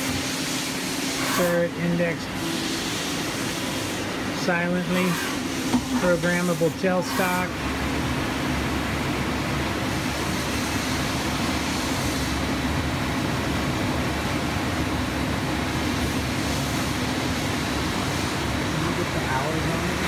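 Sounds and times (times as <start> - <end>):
lathe running: 0.0 - 20.0.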